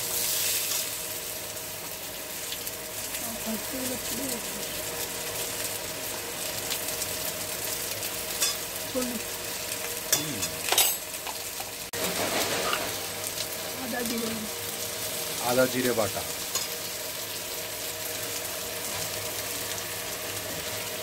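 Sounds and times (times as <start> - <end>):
vegetables sizzling in oil: 0.0 - 21.0.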